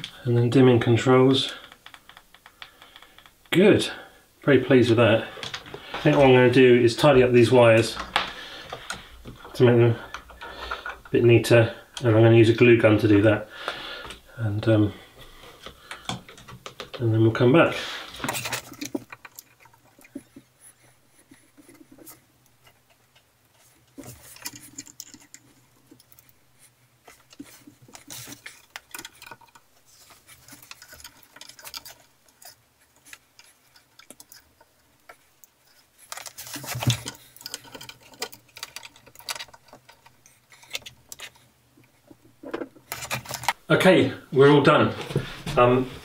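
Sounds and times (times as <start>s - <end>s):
cable rustling: 4.6s - 43.7s
small clicks and taps: 15.6s - 17.0s.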